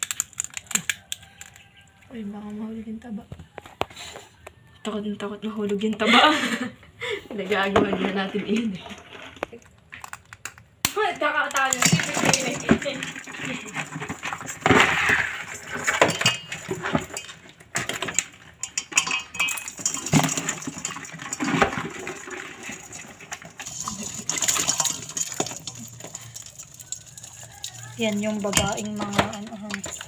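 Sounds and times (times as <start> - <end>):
crab shells scraping steel sink: 7.5 - 10.6, 11.3 - 30.0.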